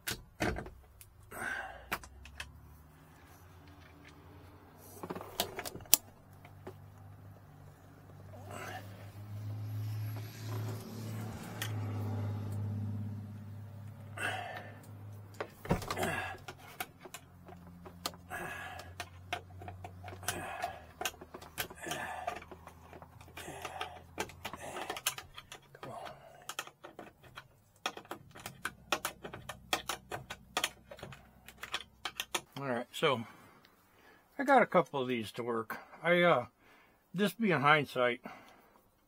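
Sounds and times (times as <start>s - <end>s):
wires clicking and rustling: 0.0s - 32.7s.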